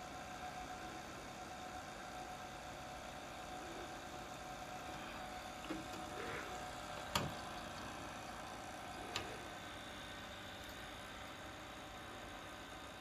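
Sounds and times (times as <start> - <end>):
tape recorder hum and hiss: 0.0 - 13.0.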